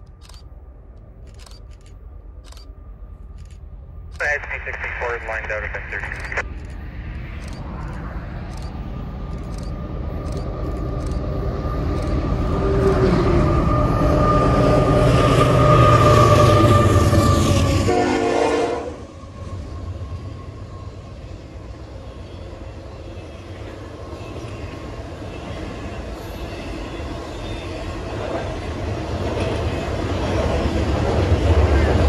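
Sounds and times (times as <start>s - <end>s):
diesel locomotive engine: 0.0s - 32.0s
freight cars rumbling and clattering: 5.7s - 17.7s
locomotive horn: 13.0s - 19.1s.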